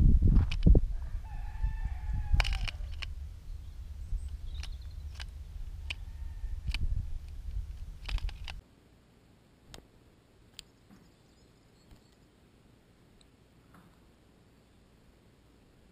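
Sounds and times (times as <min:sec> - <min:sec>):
wind rumble on microphone: 0:00.0 - 0:08.6
drawn-out bird call: 0:01.0 - 0:08.6.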